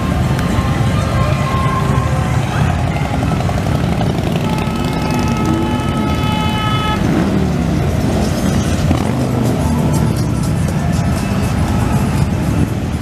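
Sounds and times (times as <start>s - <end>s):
motorcycles rumbling past: 0.0s - 13.0s
horn sounding: 3.1s - 7.6s.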